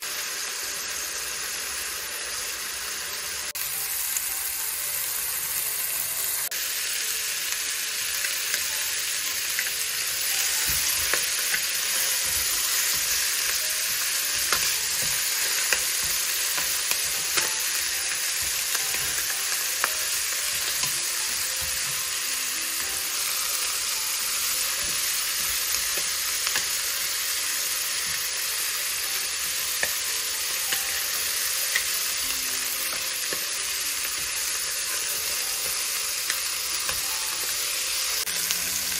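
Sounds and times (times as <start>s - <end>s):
chicken sizzling in a pot: 0.0s - 38.9s.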